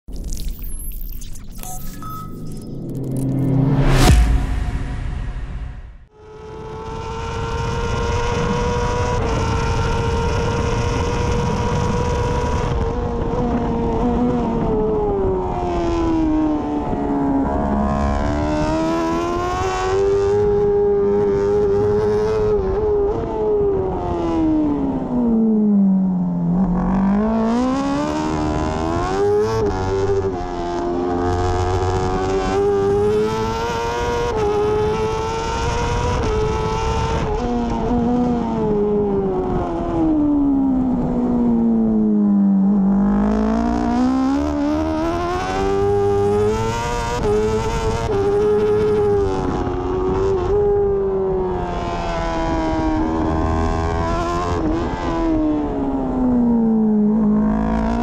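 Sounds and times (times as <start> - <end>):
wind rushing: 2.8 - 6.8
motorcycle engine at high revs: 6.3 - 58.0.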